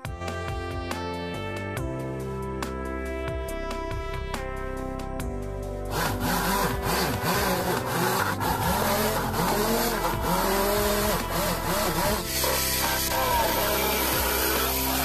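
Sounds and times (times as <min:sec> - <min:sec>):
mini drill whining: 0:05.9 - 0:15.0.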